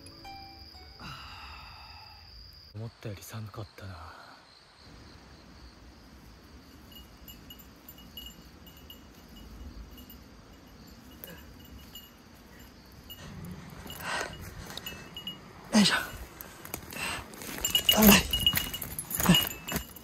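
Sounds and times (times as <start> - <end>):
low forest rumble: 4.9 - 19.7.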